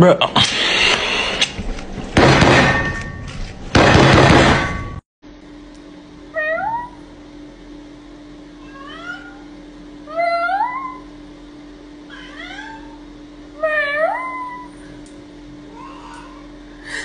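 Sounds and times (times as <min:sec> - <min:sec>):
cat meowing: 0:08.6 - 0:09.5, 0:10.1 - 0:11.1, 0:12.1 - 0:13.0, 0:13.6 - 0:14.7, 0:15.7 - 0:16.5.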